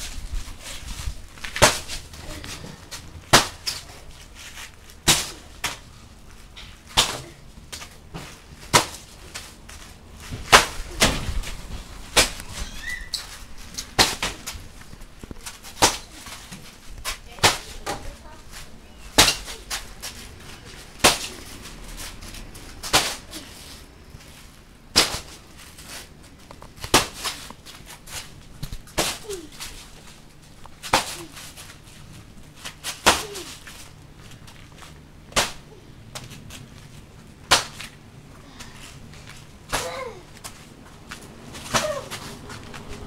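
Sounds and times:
boxing gloves punching bag: 30.8s - 31.6s, 32.9s - 33.7s, 41.5s - 43.0s.

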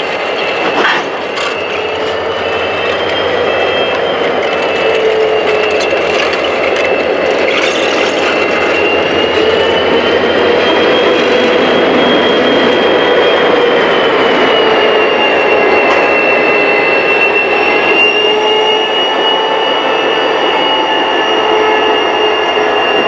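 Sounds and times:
locomotives rolling past: 0.0s - 18.0s
steady high whine: 0.0s - 23.0s.

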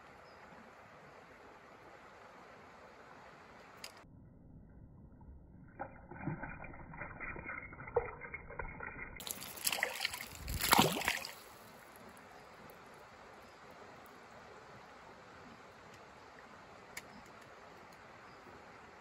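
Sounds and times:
water splashing and sloshing: 5.7s - 12.7s.

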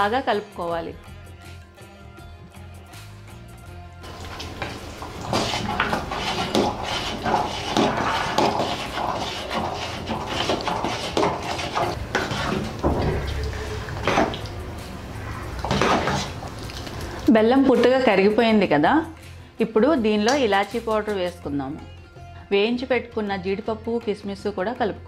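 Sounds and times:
metal spoon scraping a pot: 4.0s - 17.2s.

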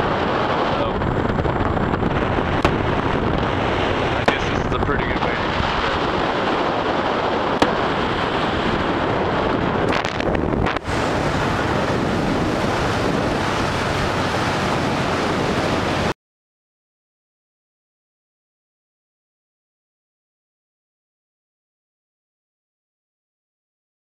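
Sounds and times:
road noise: 0.0s - 16.1s
wind rushing over microphone: 0.0s - 16.2s.

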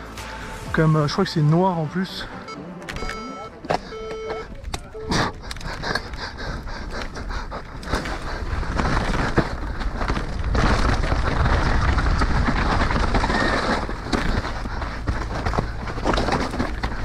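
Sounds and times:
bike tyres rolling over stones: 4.5s - 17.0s
bike chain and frame rattling: 5.4s - 17.0s.

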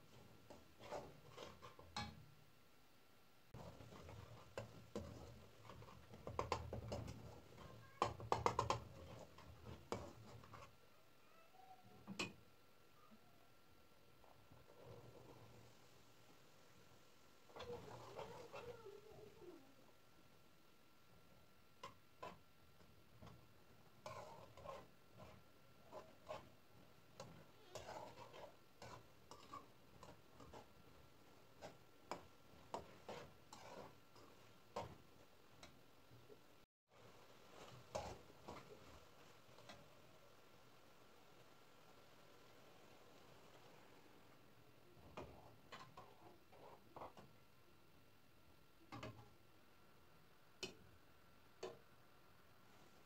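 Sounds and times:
metal utensil scraping a pan: 0.1s - 2.2s, 3.6s - 10.7s, 17.5s - 18.8s, 24.0s - 35.0s, 37.5s - 39.8s, 45.1s - 47.3s
metal spoon scraping a pot: 0.5s - 2.2s, 17.5s - 18.7s, 24.0s - 26.6s, 27.2s - 30.8s, 31.6s - 35.0s.

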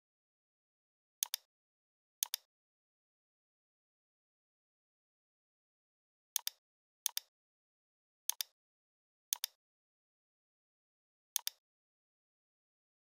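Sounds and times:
computer mouse clicking: 1.2s - 1.5s, 2.2s - 2.5s, 6.4s - 7.3s, 8.3s - 8.6s, 9.4s - 9.6s, 11.4s - 11.6s.

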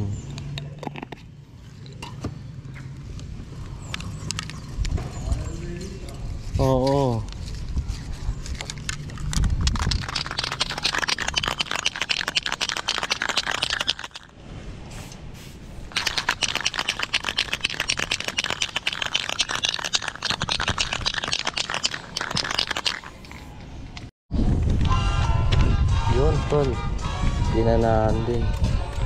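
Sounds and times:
spray can rattling when shaken: 8.4s - 14.3s, 15.9s - 23.5s.

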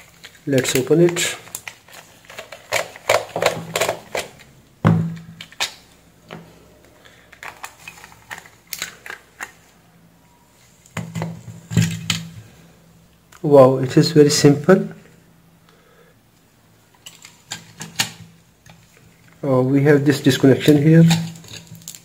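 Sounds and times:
plastic shell cracking apart: 0.2s - 4.5s, 5.1s - 5.8s, 7.3s - 9.6s, 21.0s - 22.0s
plastic creaking and rubbing: 7.3s - 9.6s.

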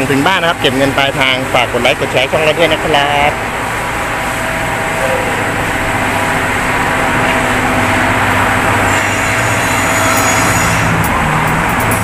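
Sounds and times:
vehicle engine running: 11.0s - 12.0s.

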